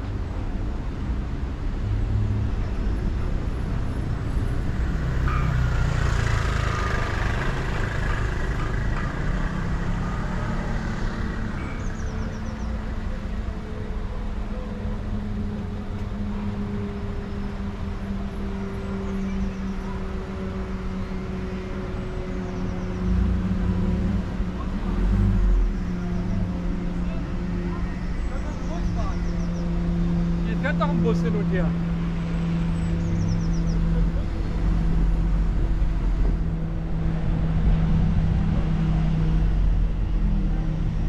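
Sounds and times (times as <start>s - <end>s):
car engine and tyre rumble: 0.0s - 41.0s
engine hum: 0.0s - 41.0s.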